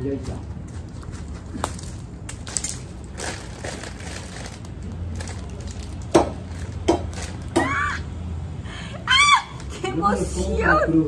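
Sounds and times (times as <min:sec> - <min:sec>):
plastic bag crinkling: 0:01.8 - 0:07.5.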